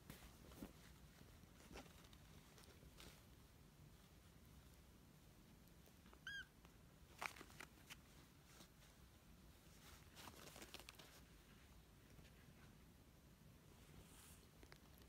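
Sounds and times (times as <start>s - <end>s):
kitten squeak: 6.2s - 6.5s.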